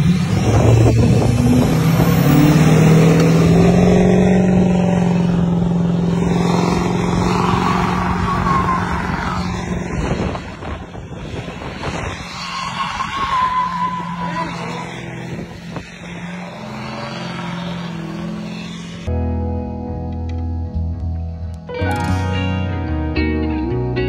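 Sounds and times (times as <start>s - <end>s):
truck engine revving under load: 0.0s - 19.1s.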